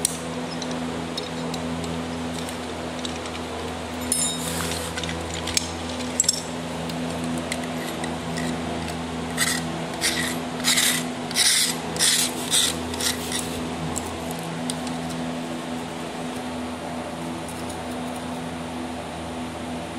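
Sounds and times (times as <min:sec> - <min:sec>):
steady low hum: 0:00.0 - 0:19.9
metal slices clinking: 0:04.0 - 0:06.5.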